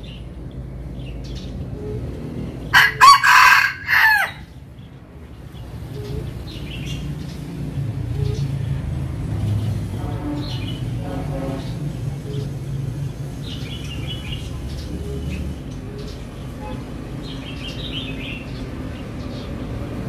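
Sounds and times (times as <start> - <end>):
rooster crowing: 2.7 - 4.5.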